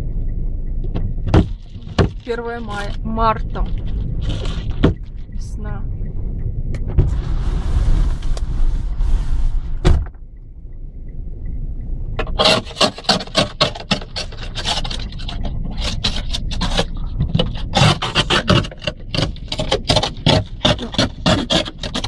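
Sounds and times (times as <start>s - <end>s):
snow scraped off car glass: 7.0s - 9.8s
brief thump: 9.7s - 10.2s.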